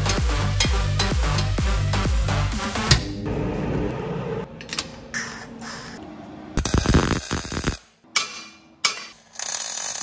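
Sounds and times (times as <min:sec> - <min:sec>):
welder arc crackling: 0:06.6 - 0:07.8.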